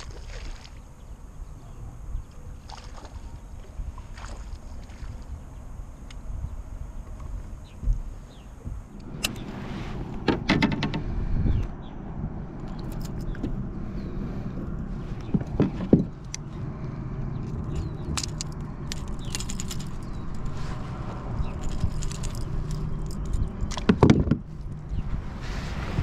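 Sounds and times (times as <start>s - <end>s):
fishing tackle clicks and rattles: 12.7s - 13.4s, 17.4s - 20.6s, 21.4s - 25.0s.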